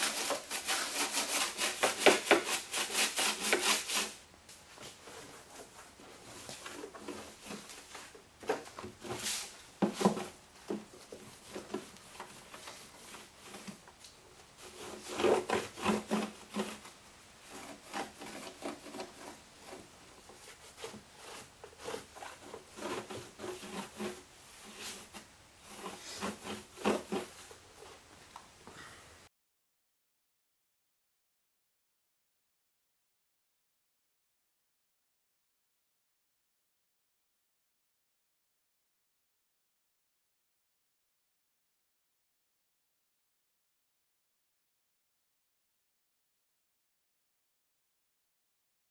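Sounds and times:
rag rubbing on metal: 0.0 - 4.2, 14.6 - 27.5.

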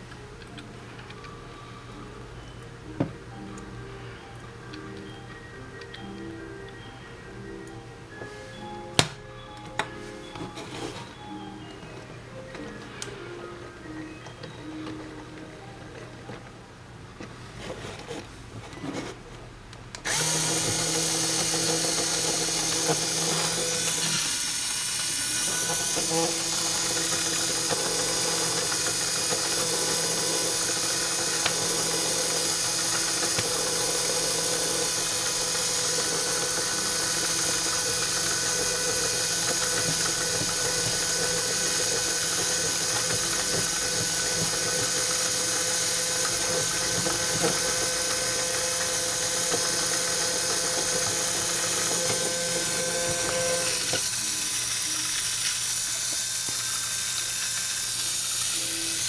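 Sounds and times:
electric motor driving plastic gears: 20.0 - 59.0.

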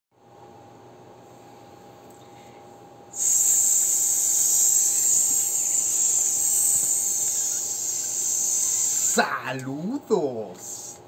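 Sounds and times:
high-pitched hiss: 3.2 - 9.3.

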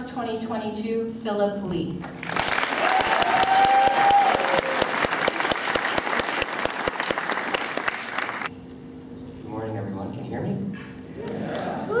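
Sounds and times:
audience applauding: 2.2 - 8.5.

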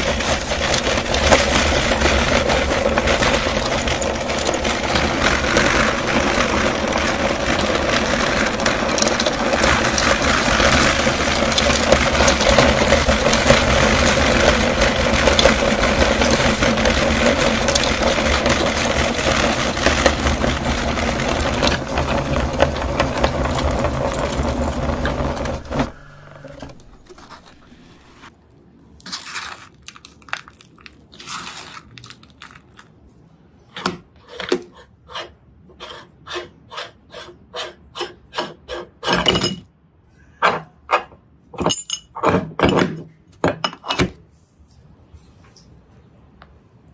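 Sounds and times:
candy crunching in grinder: 0.0 - 28.3, 29.0 - 33.2
meat grinder motor hum: 0.0 - 28.3
short scrapes and knocks: 0.0 - 28.3.

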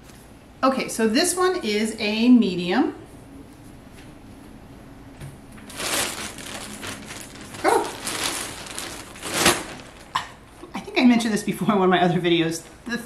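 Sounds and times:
plastic bag crinkling: 5.6 - 10.6.

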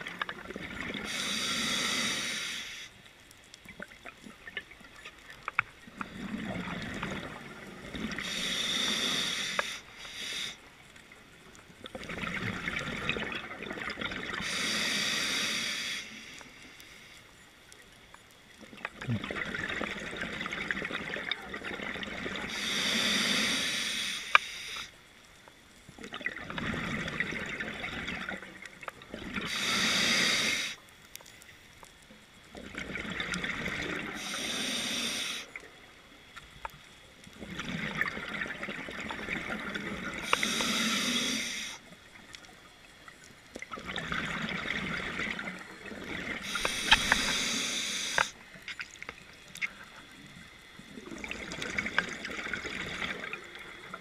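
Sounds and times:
diver breathing through regulator: 1.0 - 2.9, 8.1 - 10.7, 14.4 - 17.2, 22.5 - 24.9, 29.4 - 30.8, 34.1 - 35.5, 40.1 - 41.9, 46.4 - 48.4
exhaled bubbles rushing: 11.9 - 14.4, 19.0 - 22.5, 26.1 - 29.5, 37.4 - 40.2, 43.6 - 47.4, 50.8 - 54.0.

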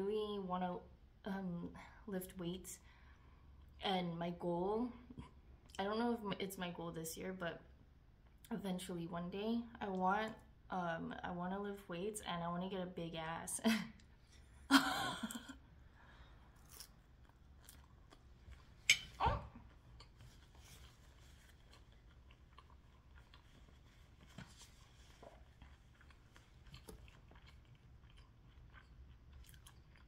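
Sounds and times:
quiet chewing: 16.0 - 30.0.

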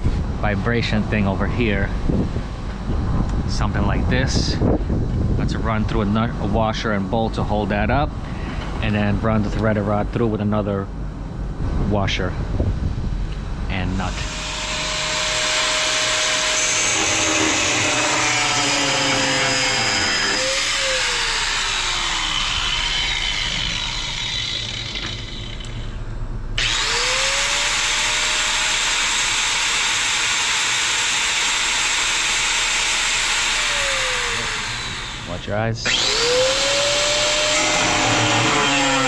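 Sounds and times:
angle grinder cutting steel: 14.0 - 25.9, 26.6 - 39.0.

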